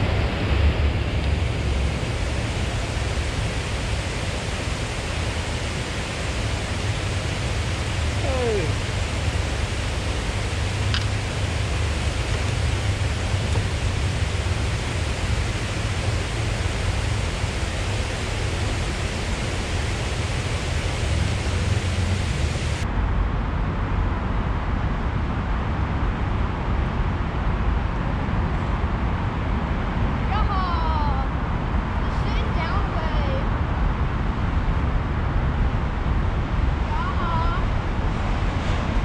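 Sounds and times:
water pouring over a dam: 0:01.5 - 0:22.8.

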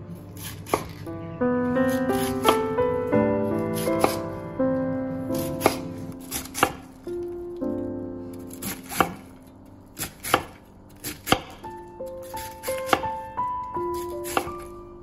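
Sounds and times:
soft keyboard music: 0:00.0 - 0:15.0
knife chopping on cutting board: 0:00.4 - 0:01.0, 0:01.9 - 0:02.6, 0:03.6 - 0:04.2, 0:05.4 - 0:06.9, 0:08.5 - 0:09.3, 0:10.0 - 0:11.6, 0:12.3 - 0:13.2, 0:13.9 - 0:14.7.

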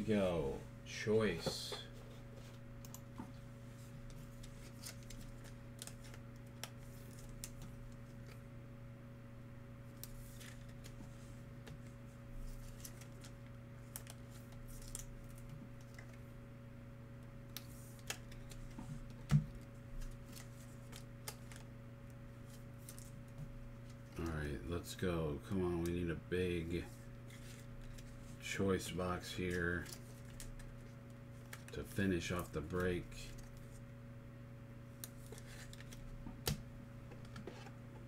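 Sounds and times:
steady low hum: 0:00.0 - 0:38.0
card packs clicking and crinkling: 0:04.3 - 0:08.4, 0:12.4 - 0:16.2, 0:17.5 - 0:21.7, 0:27.3 - 0:28.2, 0:28.8 - 0:33.7, 0:35.0 - 0:36.1.

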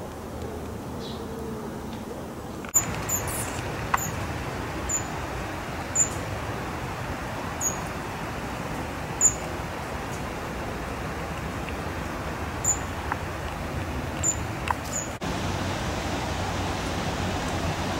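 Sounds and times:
steady rushing background noise: 0:00.0 - 0:17.9
small bird high-pitched calls: 0:02.8 - 0:04.2, 0:04.9 - 0:05.2, 0:05.8 - 0:06.2, 0:07.6 - 0:07.9, 0:09.2 - 0:09.5, 0:12.6 - 0:13.0.

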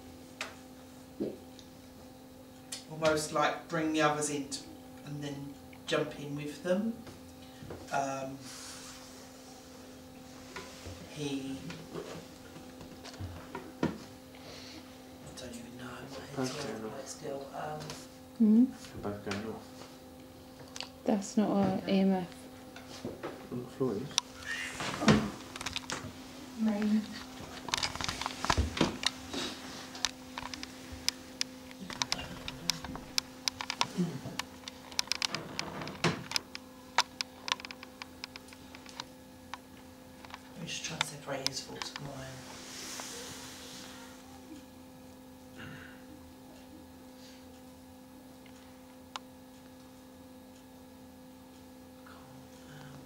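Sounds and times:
faint steady hum: 0:00.0 - 0:53.0
small clicks and taps: 0:30.0 - 0:42.1.

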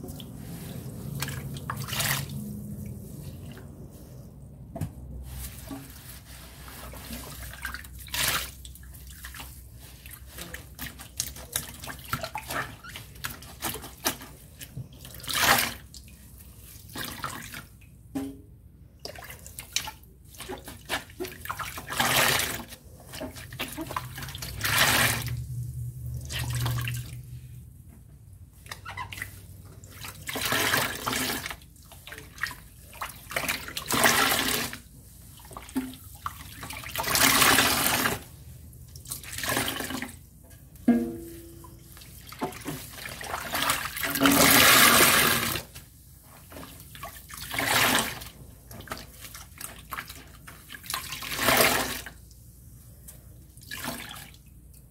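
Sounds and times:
water splashing: 0:00.0 - 0:04.0, 0:19.0 - 0:27.6, 0:28.6 - 0:40.2
wet sponges squelching: 0:00.0 - 0:18.1, 0:18.7 - 0:54.5.

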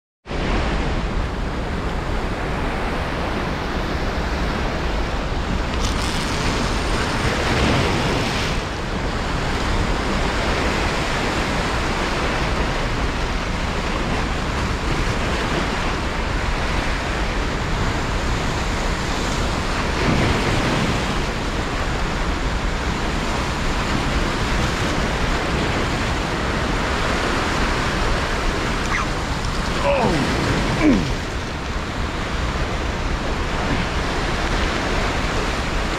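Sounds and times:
whitewater rushing: 0:01.6 - 0:35.9.

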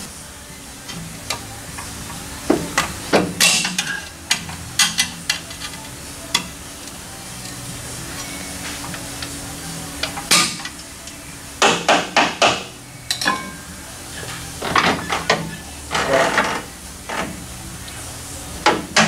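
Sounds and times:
metal tools clanking: 0:13.0 - 0:17.3.

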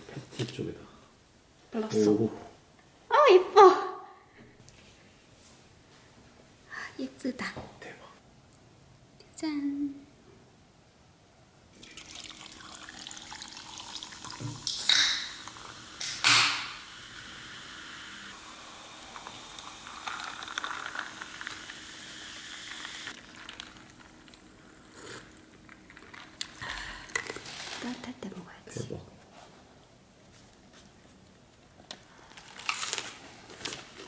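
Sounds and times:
soda fizzing over ice: 0:11.8 - 0:24.9.

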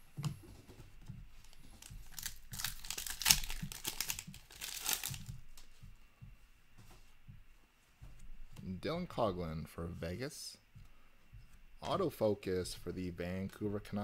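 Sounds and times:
soft handling sounds: 0:00.0 - 0:13.6
foil wrapper tearing and crinkling: 0:01.8 - 0:05.3.

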